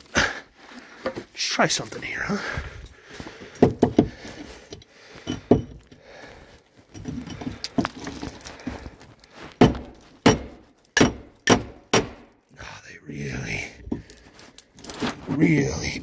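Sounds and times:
scraping and rustling: 0:14.0 - 0:16.0.

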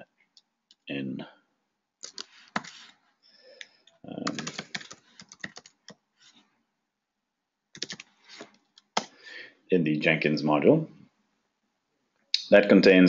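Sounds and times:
typing on a keyboard: 0:02.0 - 0:02.8, 0:04.2 - 0:06.0, 0:07.8 - 0:08.1.

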